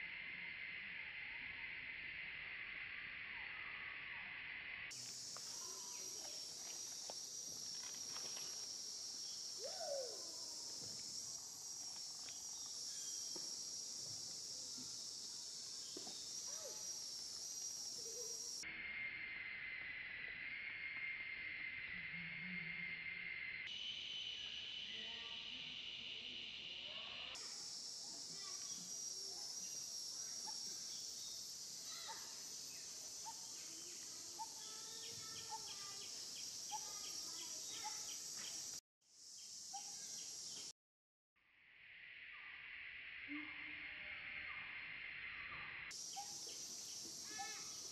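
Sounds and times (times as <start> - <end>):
insect chorus drone: 0.0 - 40.7, 41.4 - 47.9
faint clicks and chirps: 11.8 - 13.6.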